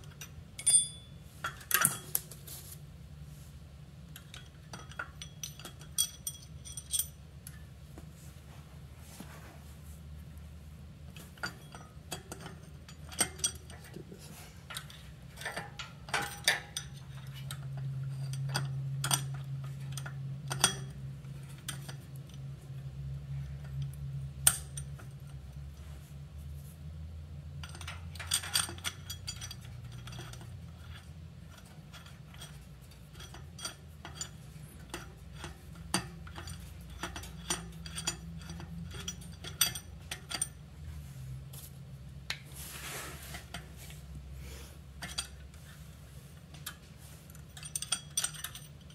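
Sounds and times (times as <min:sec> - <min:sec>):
metal nuts and bolts clinking: 0:00.0 - 0:02.4, 0:04.1 - 0:07.7, 0:11.1 - 0:25.7, 0:27.5 - 0:40.8, 0:44.8 - 0:48.9
low steady hum: 0:00.0 - 0:48.9.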